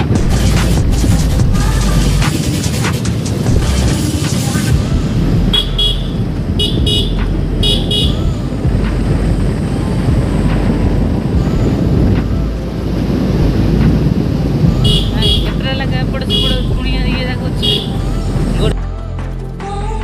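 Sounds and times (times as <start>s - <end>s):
motorcycle engine and wind rumble: 3.2s - 18.8s.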